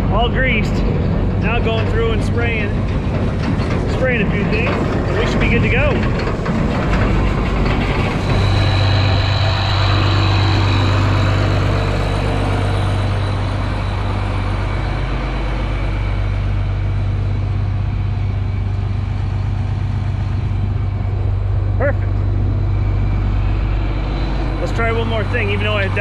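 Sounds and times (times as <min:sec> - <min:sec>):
tractor engine humming: 0:00.0 - 0:26.0
thin high whine: 0:07.7 - 0:26.0.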